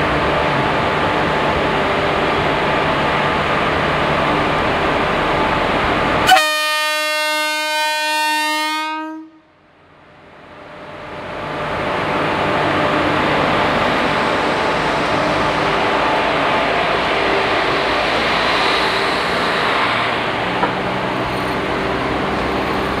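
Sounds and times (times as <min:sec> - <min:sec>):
electric locomotive hum and rumble: 0:00.0 - 0:23.0
train horn long blast: 0:06.2 - 0:09.6.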